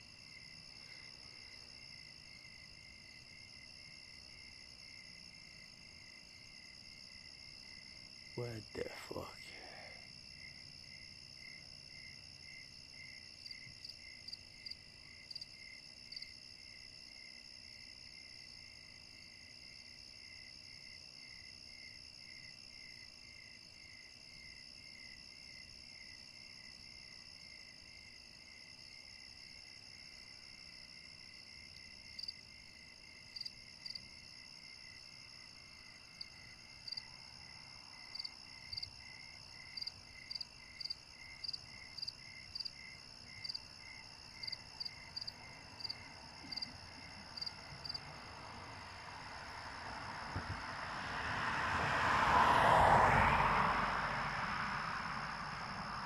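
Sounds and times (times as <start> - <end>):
crickets trilling: 26.2 - 51.4.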